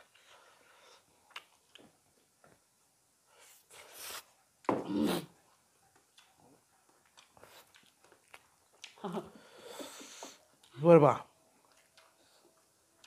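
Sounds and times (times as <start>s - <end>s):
breathy hisses: 9.3s - 10.4s.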